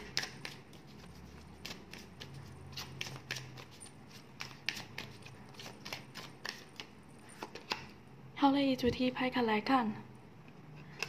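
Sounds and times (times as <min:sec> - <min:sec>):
cards clicking and tapping: 0:00.0 - 0:08.0.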